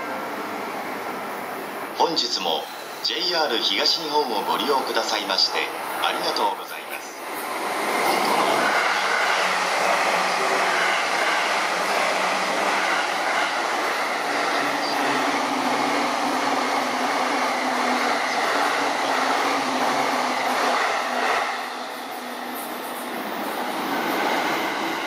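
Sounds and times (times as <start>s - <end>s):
train wheels rumbling on rails: 7.2s - 25.0s.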